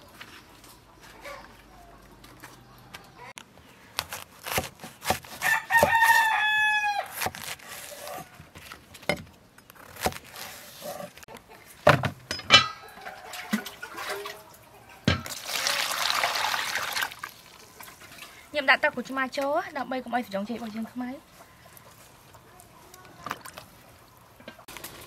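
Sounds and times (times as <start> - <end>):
knife chopping on wooden board: 4.0 - 6.2
rooster crowing: 5.4 - 7.1, 12.8 - 13.8
water pouring into plastic basin: 15.3 - 18.4.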